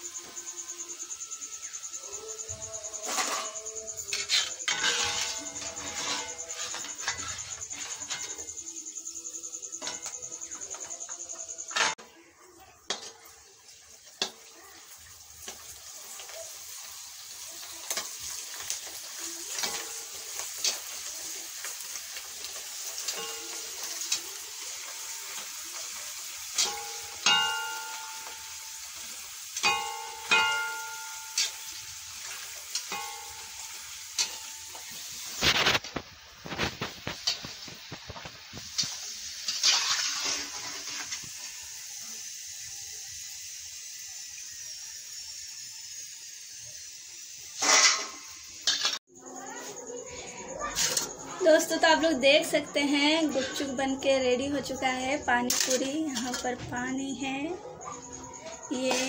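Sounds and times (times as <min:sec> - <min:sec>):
deep-frying oil sizzle: 0:00.0 - 0:49.0
metal ladle clinking on pan: 0:26.6 - 0:28.7, 0:29.6 - 0:34.9.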